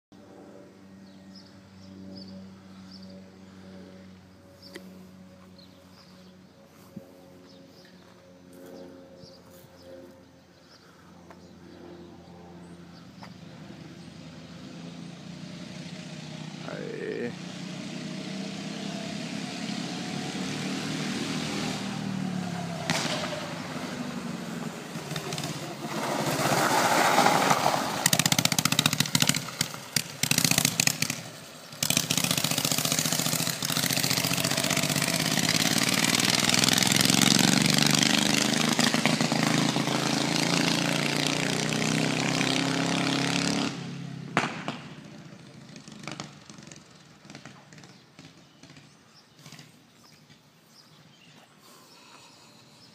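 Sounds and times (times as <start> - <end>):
kart engine revving: 13.9 - 49.7.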